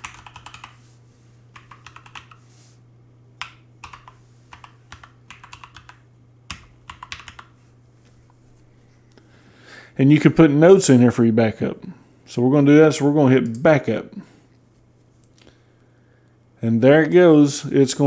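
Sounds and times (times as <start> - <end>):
typing on computer keyboard: 0.0 - 0.8, 1.6 - 2.4, 3.4 - 7.5
low steady hum: 0.0 - 18.0.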